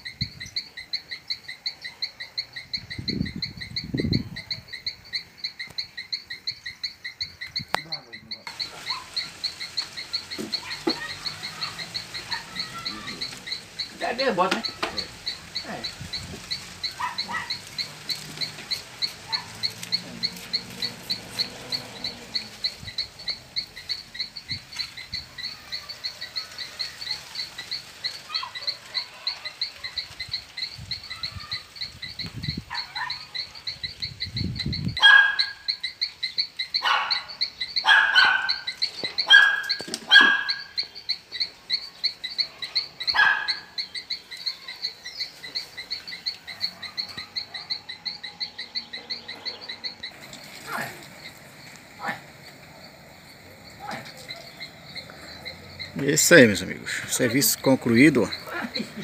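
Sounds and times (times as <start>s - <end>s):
animal chirping call: 0.0s - 59.0s
dog barking: 12.3s - 12.6s, 17.0s - 17.6s, 19.3s - 19.6s, 32.7s - 33.4s, 35.0s - 35.6s, 36.8s - 40.7s, 43.1s - 43.7s.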